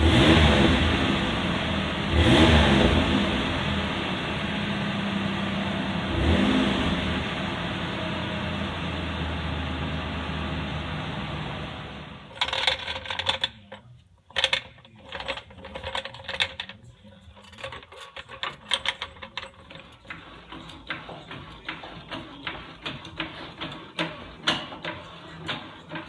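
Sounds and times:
truck engine running: 0.0 - 12.4
floor jack metallic clicks: 12.3 - 26.0.

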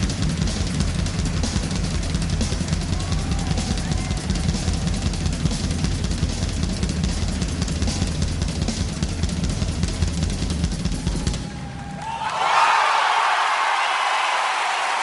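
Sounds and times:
bass drum strokes: 0.0 - 11.6
tom drums: 0.0 - 11.7.

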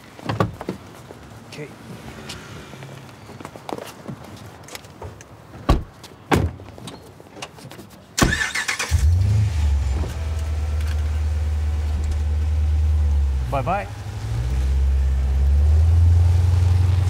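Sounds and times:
car engine starting and idling: 8.2 - 17.0.

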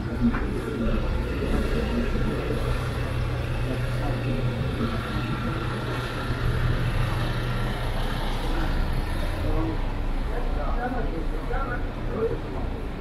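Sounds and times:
people's voices: 0.0 - 13.0
vehicle engine running: 0.0 - 13.0.

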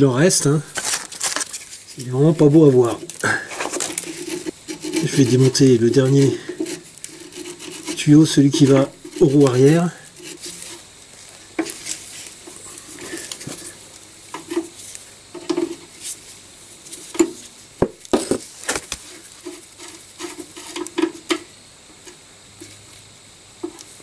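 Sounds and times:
rubbing and creaking: 0.7 - 10.9.

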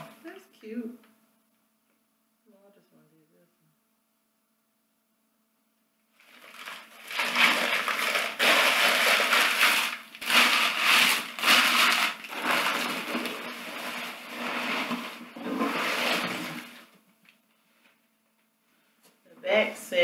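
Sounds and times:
packing paper crinkling: 6.2 - 16.9.

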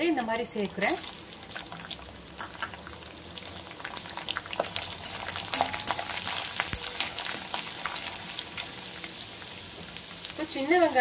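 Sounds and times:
garlic sizzling in oil: 0.0 - 11.0
metal spoon clinking against pan: 5.0 - 6.2.

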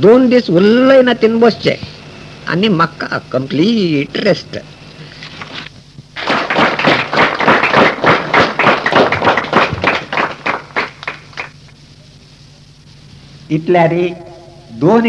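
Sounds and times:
audience applauding: 6.2 - 11.7.

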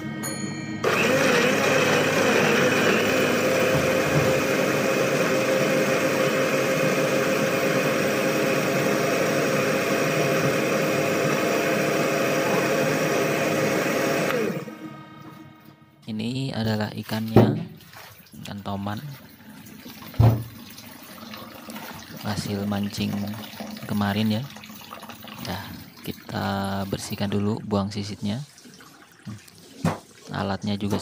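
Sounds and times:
blender grinding: 0.8 - 14.9.

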